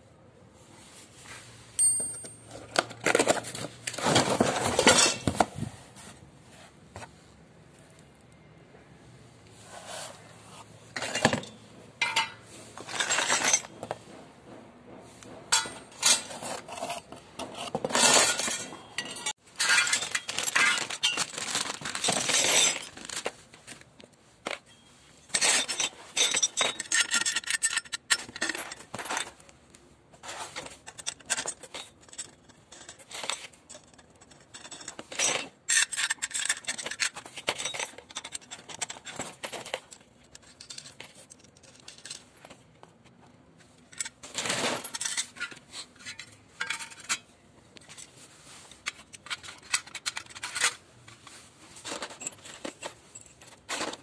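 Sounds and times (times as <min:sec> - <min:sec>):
nuts and bolts clinking and scraping: 0:01.7 - 0:05.6, 0:10.4 - 0:29.5, 0:30.2 - 0:54.0
plastic bag crinkling: 0:20.3 - 0:22.0.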